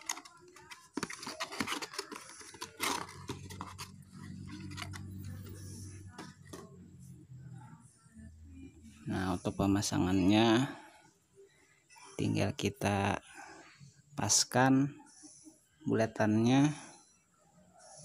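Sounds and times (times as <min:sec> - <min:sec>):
cardboard box scraping and rustling: 0:00.9 - 0:05.0.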